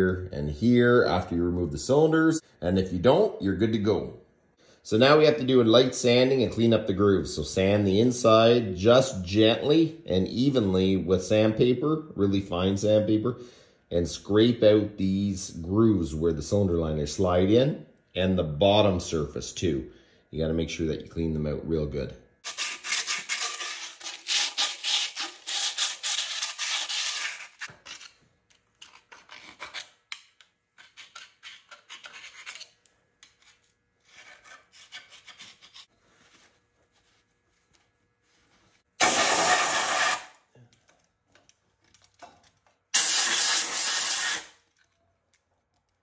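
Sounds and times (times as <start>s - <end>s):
sandpaper rubbing metal: 22.4s - 28.1s, 39.0s - 40.3s, 43.0s - 44.6s.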